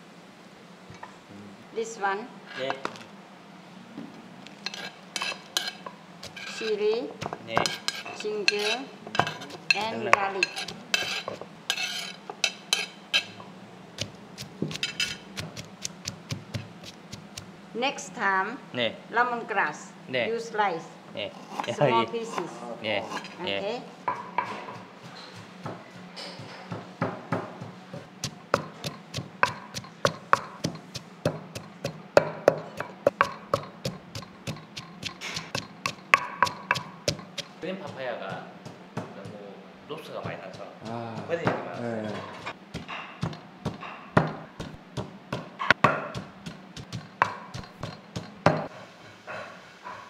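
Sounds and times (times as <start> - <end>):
metal spoon scraping china plate: 4.7 - 6.8, 7.6 - 13.4, 14.7 - 15.3, 23.1 - 23.4
wooden pestle pounding in mortar: 7.2 - 8.0, 14.0 - 17.5, 26.7 - 39.4, 40.1 - 48.7.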